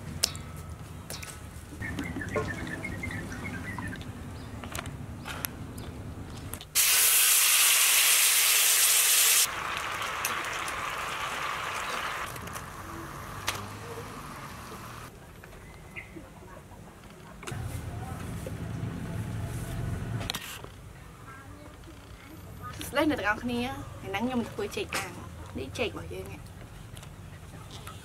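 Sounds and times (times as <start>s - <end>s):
bird chirps: 1.1s - 4.6s
liquid sizzling in a hot wok: 6.8s - 12.3s.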